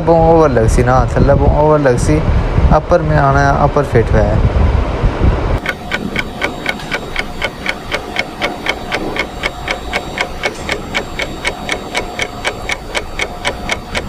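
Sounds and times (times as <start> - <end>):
rapid ticking: 5.6 - 14.0.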